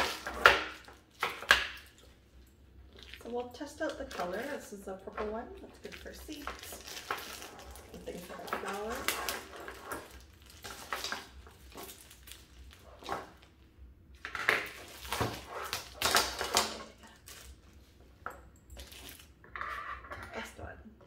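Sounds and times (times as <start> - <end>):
plastic packaging crinkling: 2.8 - 17.9, 18.8 - 19.4.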